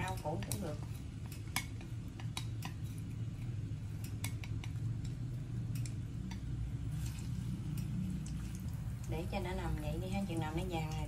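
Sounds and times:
shallots frying in oil: 0:00.0 - 0:11.0.

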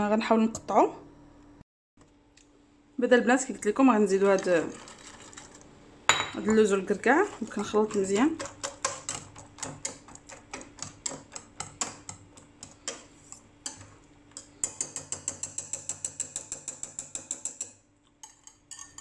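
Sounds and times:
whisk clicking against saucepan: 0:06.6 - 0:19.0.

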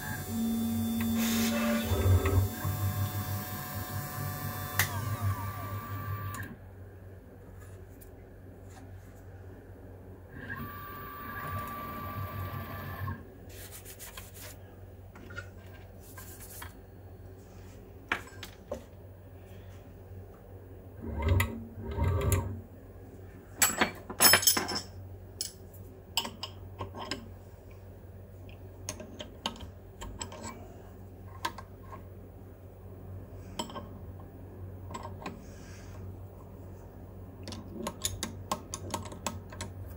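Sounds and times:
motor whine: 0:00.0 - 0:06.6, 0:10.4 - 0:13.2
machine low hum: 0:00.0 - 0:23.6, 0:24.9 - 0:39.9.

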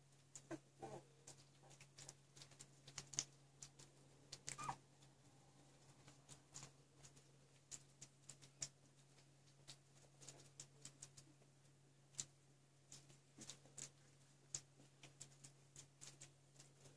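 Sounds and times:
faint ticks and rustles: 0:00.0 - 0:16.9
puppy squeaking: 0:04.4 - 0:04.8.

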